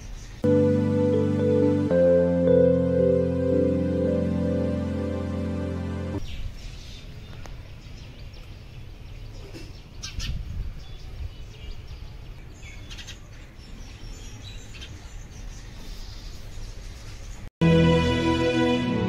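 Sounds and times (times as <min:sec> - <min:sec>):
sparrows chirping: 0:06.2 - 0:17.4.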